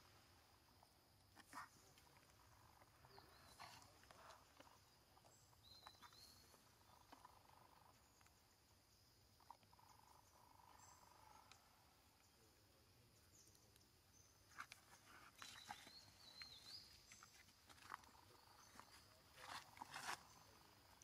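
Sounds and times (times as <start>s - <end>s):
faint forest ambience: 0.0s - 21.0s
soft ticks: 11.3s - 11.6s.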